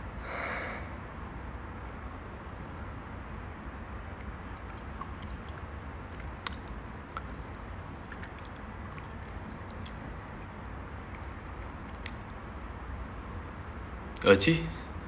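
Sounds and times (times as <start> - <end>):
low background hum: 0.0 - 15.0
small clicks and ticks: 4.2 - 10.4, 11.1 - 12.4.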